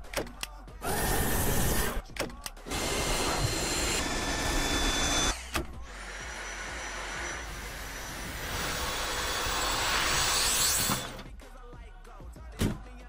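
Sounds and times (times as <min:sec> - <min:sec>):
sharp clicks: 0:00.0 - 0:00.6
cordless vacuum motor whine: 0:02.7 - 0:05.4.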